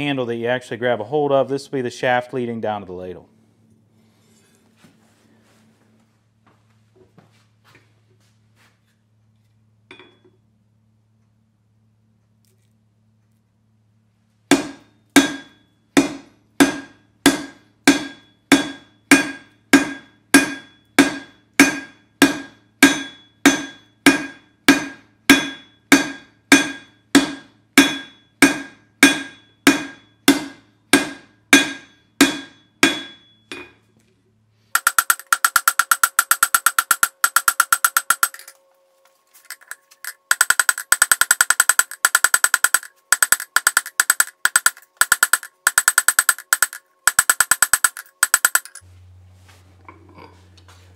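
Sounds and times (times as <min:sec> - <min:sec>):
hammer striking metal on anvil: 0:09.9 - 0:10.3, 0:14.5 - 0:33.8, 0:34.8 - 0:38.6, 0:39.4 - 0:48.8.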